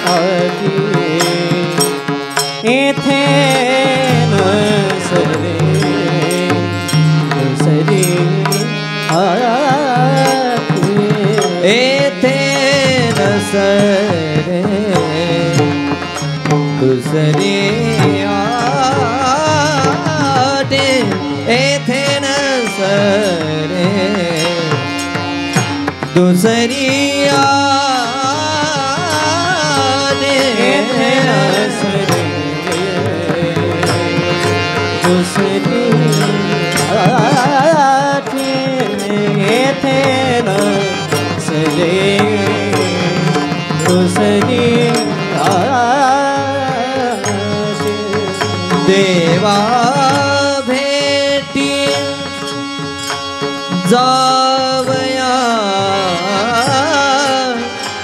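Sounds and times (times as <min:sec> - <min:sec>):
instrumental accompaniment: 0:00.0 - 0:58.0
men singing devotional melody: 0:00.0 - 0:58.0.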